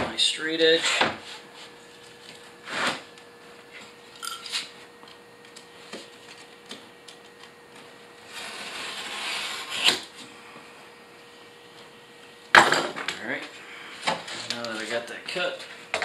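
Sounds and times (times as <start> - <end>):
knife scoring wallboard paper: 8.3 - 10.0.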